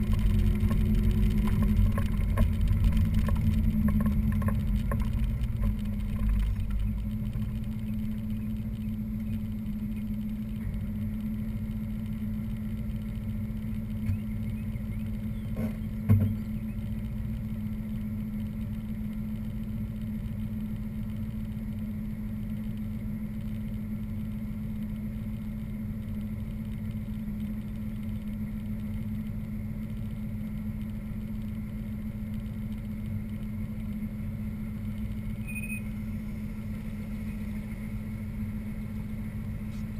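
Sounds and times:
car engine idling: 0.0s - 20.0s, 32.6s - 39.9s
brief thump: 15.6s - 16.4s.

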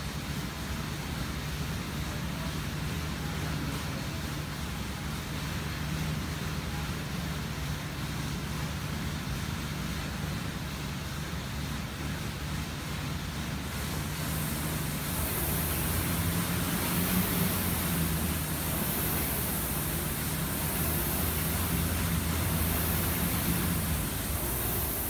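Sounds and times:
rowing machine fan whooshing: 0.0s - 25.0s
low hum: 13.0s - 25.0s.

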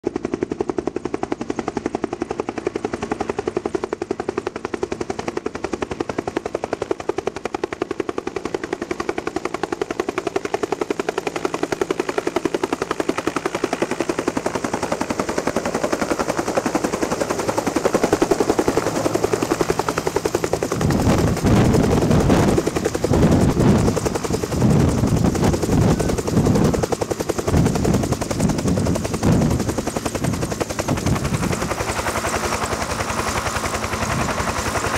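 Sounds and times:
helicopter rotor blade slap: 11.4s - 34.9s
wind buffeting microphone: 18.2s - 32.3s, 33.6s - 34.9s.

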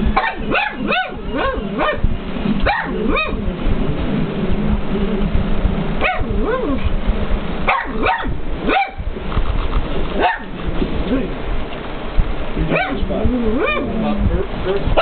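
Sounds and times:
dog barking: 0.2s - 3.4s, 6.0s - 6.8s, 7.7s - 9.1s, 10.2s - 10.5s, 12.7s - 13.0s, 13.6s - 13.9s.

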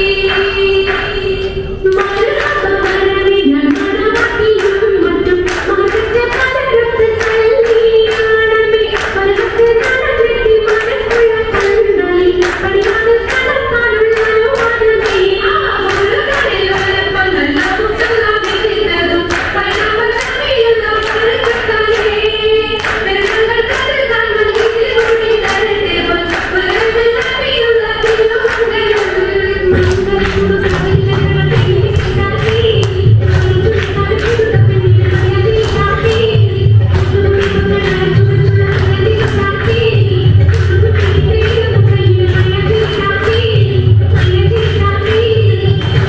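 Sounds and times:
hand claps: 0.0s - 46.0s
women singing: 0.0s - 46.0s.

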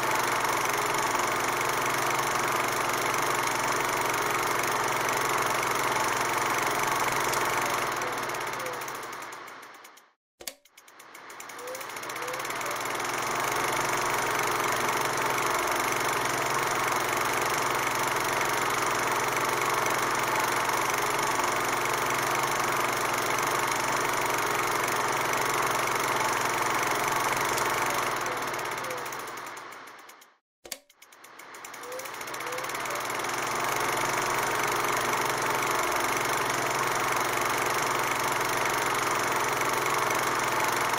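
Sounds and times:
mechanical whirring: 7.0s - 16.2s, 26.3s - 35.4s.

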